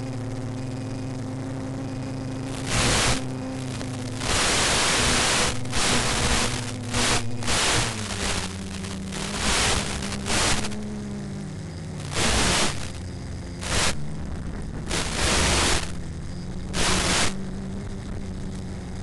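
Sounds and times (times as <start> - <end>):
model plane motor drone: 0.0 - 19.0
radio static bursts: 2.4 - 11.2, 11.8 - 18.5.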